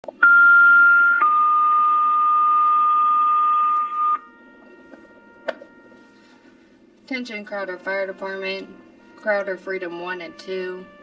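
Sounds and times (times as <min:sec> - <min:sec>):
two-tone radio paging alert: 0:00.0 - 0:04.3.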